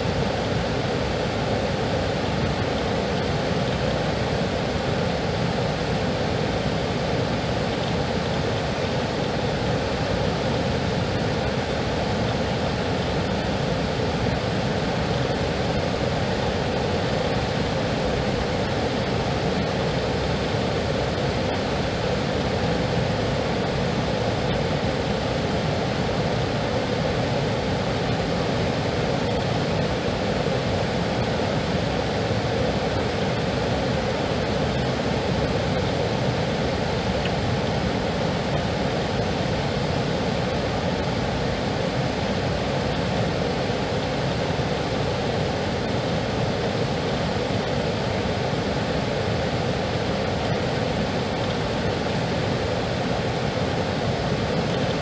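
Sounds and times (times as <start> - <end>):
water rushing over a weir: 0.0 - 55.0.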